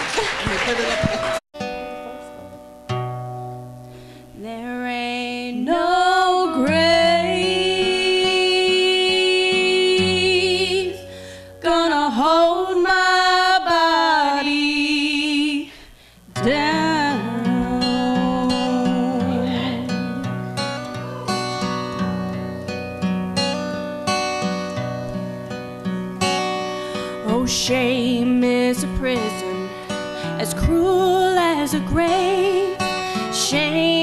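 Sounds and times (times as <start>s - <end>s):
acoustic guitar strumming: 1.0s - 14.6s, 16.0s - 34.0s
woman singing with vibrato: 4.4s - 15.8s, 16.4s - 22.0s, 26.4s - 34.0s.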